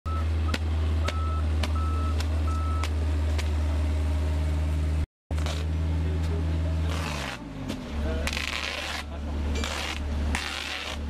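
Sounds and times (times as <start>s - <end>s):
reversing alarm beeping: 0.1s - 2.9s
heavy vehicle engine running: 0.1s - 11.0s.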